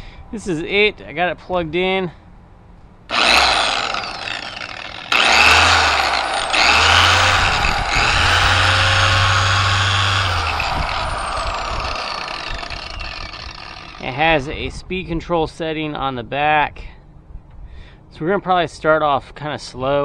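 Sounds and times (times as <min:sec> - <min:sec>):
polisher electric motor whine: 0:03.1 - 0:14.0.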